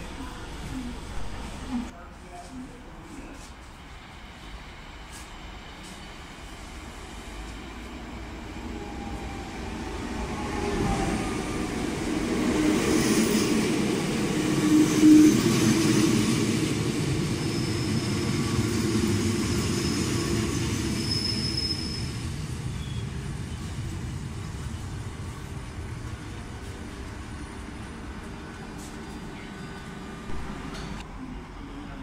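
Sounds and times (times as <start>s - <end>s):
train pulling into station: 0.0s - 32.0s
high brake squeal: 17.4s - 18.8s, 19.4s - 23.2s.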